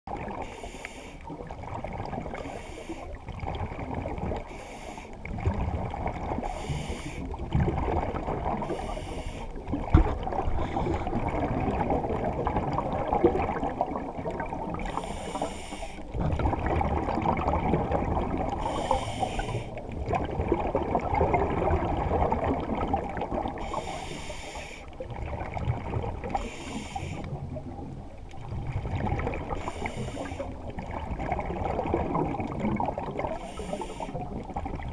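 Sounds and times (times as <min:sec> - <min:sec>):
gurgle of exhaled bubbles: 0:00.1 - 0:00.5, 0:01.2 - 0:04.5, 0:05.2 - 0:24.0, 0:24.9 - 0:34.9
diver breathing through regulator: 0:00.4 - 0:01.3, 0:02.4 - 0:03.2, 0:04.4 - 0:05.2, 0:06.4 - 0:07.4, 0:08.6 - 0:09.6, 0:10.5 - 0:11.2, 0:14.8 - 0:16.2, 0:18.5 - 0:19.9, 0:23.6 - 0:25.0, 0:26.3 - 0:27.4, 0:29.5 - 0:30.6, 0:33.2 - 0:34.3.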